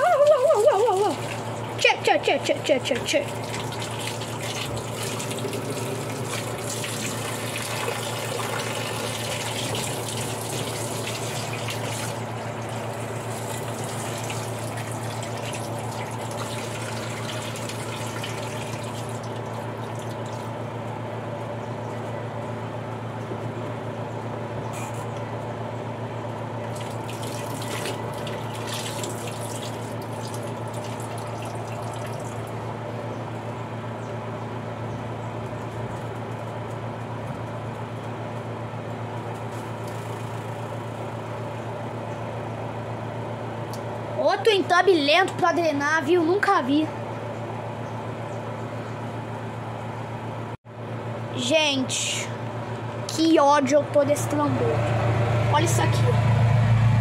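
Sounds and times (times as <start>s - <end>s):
steady low hum: 0.0s - 57.0s
water from hose pouring into tub: 3.3s - 20.4s, 26.7s - 32.4s.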